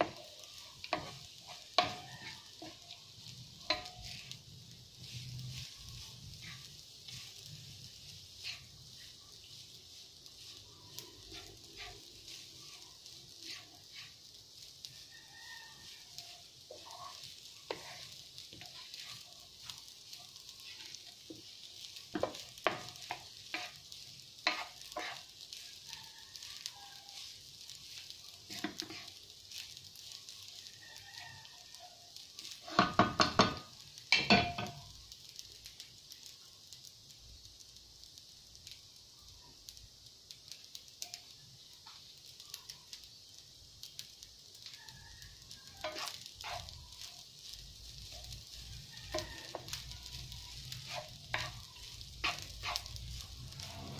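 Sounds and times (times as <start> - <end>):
wooden spatula scraping a pan: 0.0 - 30.1, 32.4 - 34.9, 44.6 - 53.9
rice sizzling in a frying pan: 0.0 - 53.9.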